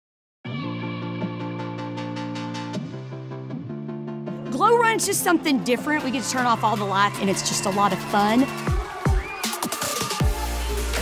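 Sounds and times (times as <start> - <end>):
background music with ticking beat: 6.0 - 11.0.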